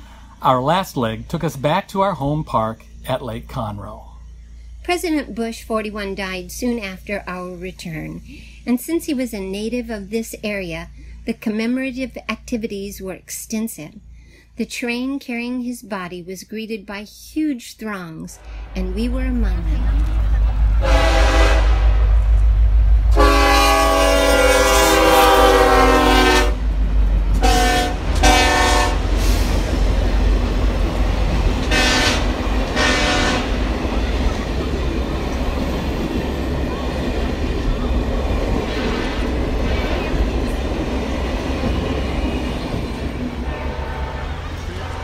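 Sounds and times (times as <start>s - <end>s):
train wheels rumbling and clattering: 18.4s - 45.0s
locomotive air horn blasts: 20.8s - 22.2s, 23.1s - 26.6s, 27.3s - 29.5s, 31.6s - 33.6s, 43.4s - 45.0s.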